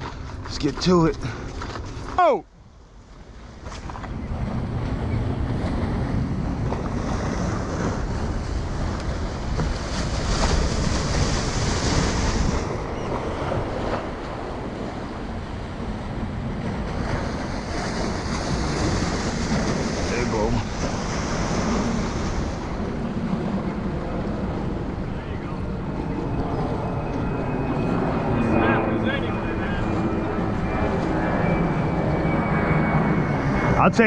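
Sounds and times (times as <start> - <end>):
wind buffeting microphone: 3.0 - 33.8
waves washing over rocks: 16.7 - 22.9.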